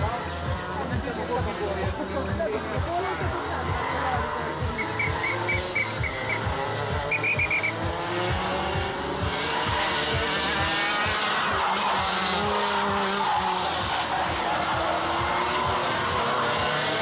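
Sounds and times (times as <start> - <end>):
kart engines revving: 0.0 - 17.0.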